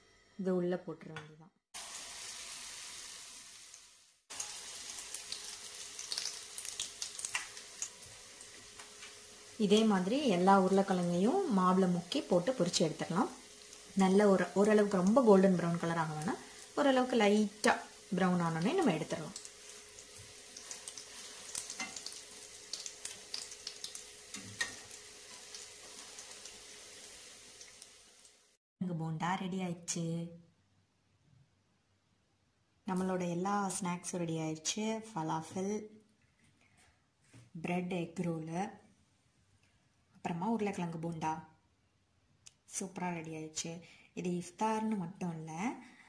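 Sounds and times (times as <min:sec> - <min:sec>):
food deep-frying in oil: 0:01.8 - 0:28.6.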